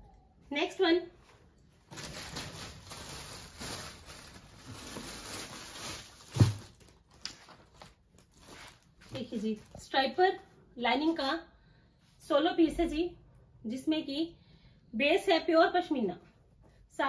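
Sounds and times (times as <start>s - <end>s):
cloth rustling: 1.2s - 9.8s.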